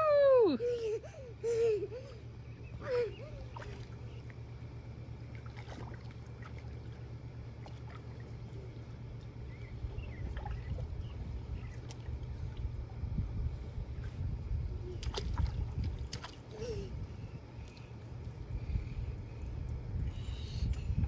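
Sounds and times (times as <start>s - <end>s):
low steady rumble: 0.0s - 21.0s
light splashing in pool: 3.4s - 13.0s, 15.0s - 19.9s.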